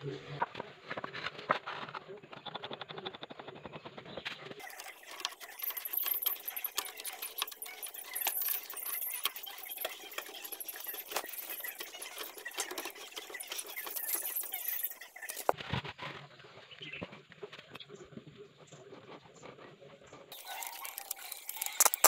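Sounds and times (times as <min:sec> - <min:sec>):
high chirping: 0:04.6 - 0:15.5.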